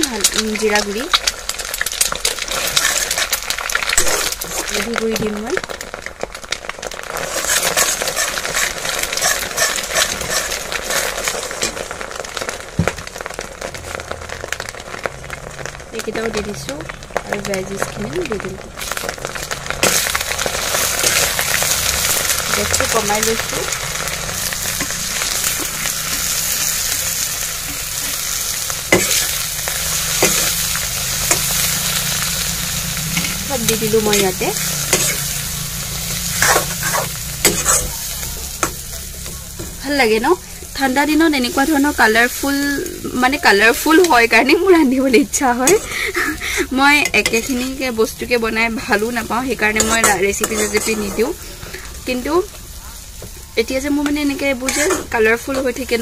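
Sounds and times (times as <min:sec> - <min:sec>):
egg sizzling in oil: 0:00.0 - 0:56.0
spatula scraping pan: 0:02.2 - 0:04.9, 0:07.1 - 0:11.9, 0:19.8 - 0:39.8, 0:46.8 - 0:48.0, 0:48.8 - 0:51.9, 0:54.0 - 0:56.0.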